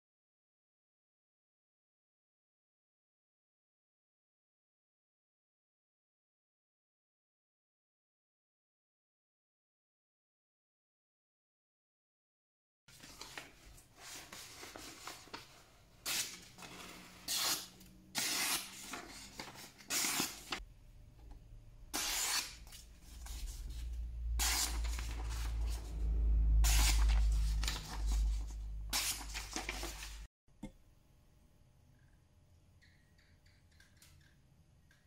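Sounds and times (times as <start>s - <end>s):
knife slicing paper: 16.0s - 20.6s, 21.9s - 23.8s, 24.4s - 25.8s, 26.6s - 30.3s
low rumble: 23.3s - 29.3s.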